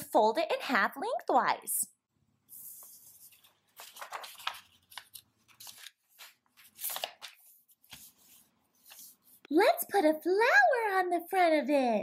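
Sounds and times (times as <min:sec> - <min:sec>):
paper rustling and crinkling: 0:02.5 - 0:09.4.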